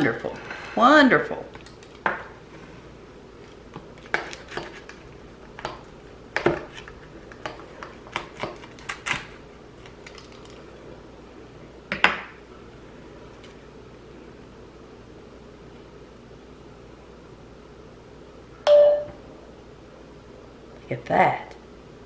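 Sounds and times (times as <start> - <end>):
pizza cutter crunching crust: 3.9 - 10.5.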